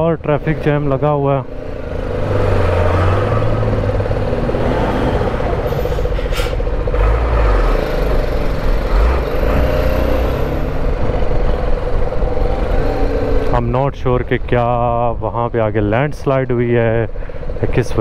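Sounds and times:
idling trucks and cars: 0.0s - 18.0s.

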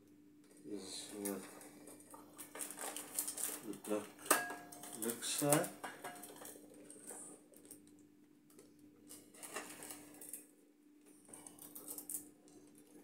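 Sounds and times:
plastic bricks clicking and rustling: 1.2s - 7.8s.

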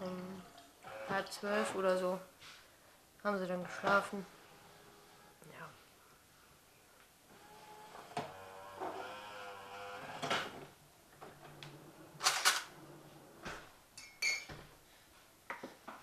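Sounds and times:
cup clinking and knocking: 14.0s - 14.6s.

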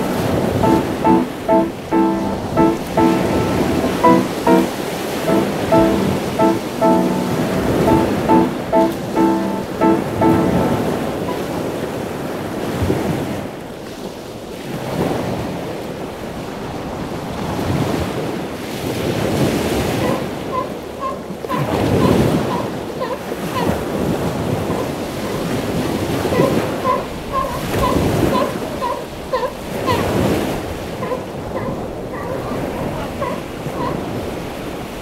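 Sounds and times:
ocean surf washing ashore: 0.0s - 20.5s.

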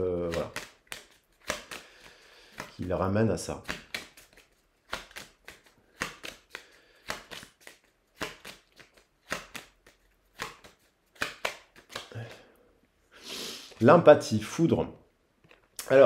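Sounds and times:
cards being shuffled: 0.0s - 12.5s.

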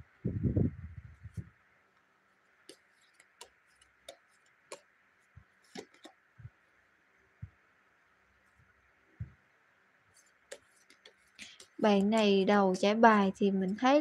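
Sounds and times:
cards rustling and bumping: 2.6s - 6.3s, 10.1s - 14.0s
cards clicking on table: 5.7s - 6.2s.

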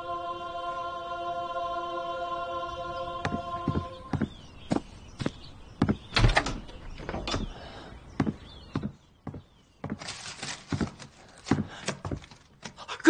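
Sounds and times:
hurried footsteps: 3.2s - 6.2s, 7.2s - 12.8s
door opening: 5.8s - 7.7s
sliding rustling scrape: 10.0s - 11.6s.

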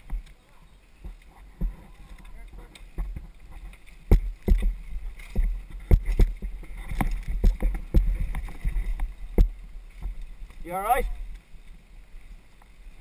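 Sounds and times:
wind and tyre rumble: 0.0s - 13.0s
bike knocks and rattles: 1.0s - 10.3s.

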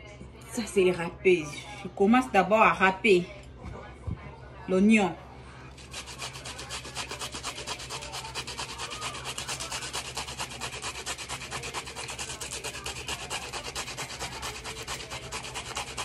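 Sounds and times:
onion grated on metal grater: 5.8s - 16.0s.

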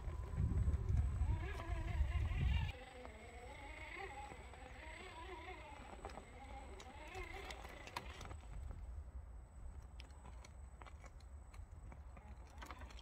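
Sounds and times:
electric motor and gears whining: 0.0s - 8.8s, 12.0s - 13.0s.

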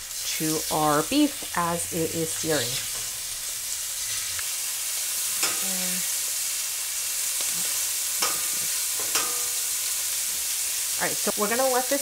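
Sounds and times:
beef sizzling in hot oil: 0.0s - 12.0s
metal tongs clicking on pan: 5.4s - 5.8s, 8.2s - 9.7s.

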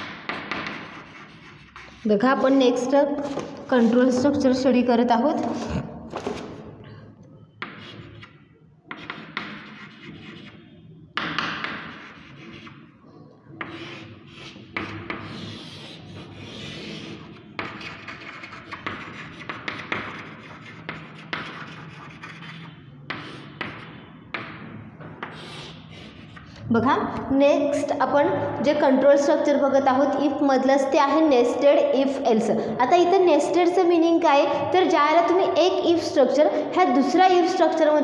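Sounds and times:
chalk scraping on chalkboard: 0.2s - 4.4s, 7.6s - 10.7s, 11.3s - 12.9s, 13.6s - 24.4s, 25.2s - 26.6s.

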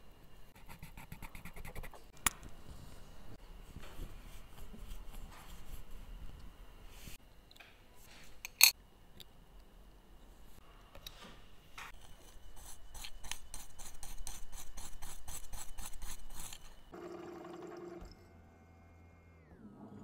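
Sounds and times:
cleaning machine hum: 16.9s - 20.0s.

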